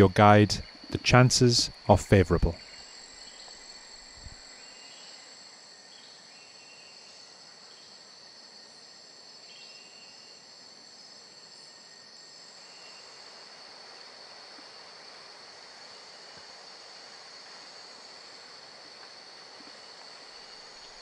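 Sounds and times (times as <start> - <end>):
insect chirps: 0.0 - 21.0
insects buzzing: 0.0 - 21.0.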